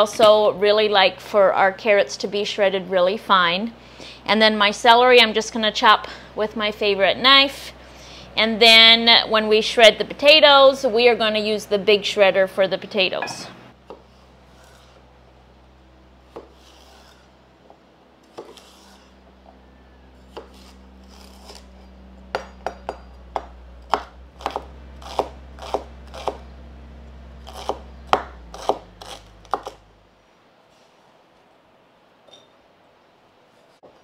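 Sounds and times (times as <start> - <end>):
knife chopping on wooden board: 18.3 - 19.0, 20.3 - 21.6, 22.3 - 26.4, 27.5 - 29.8.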